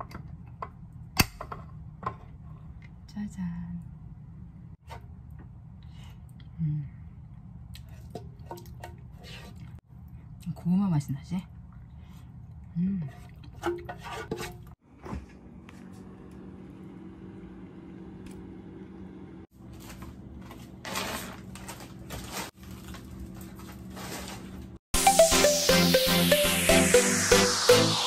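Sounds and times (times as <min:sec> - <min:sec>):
spatula scraping a pan: 0:07.9 - 0:09.6, 0:13.1 - 0:14.8
plastic-wrapped packages rustling: 0:19.6 - 0:24.8
loud electronic dance music: 0:25.0 - 0:28.0.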